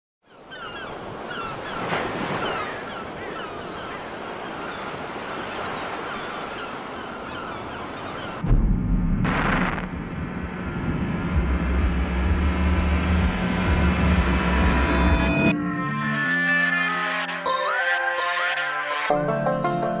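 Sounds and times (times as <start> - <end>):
birds chirping: 0.2 - 8.4.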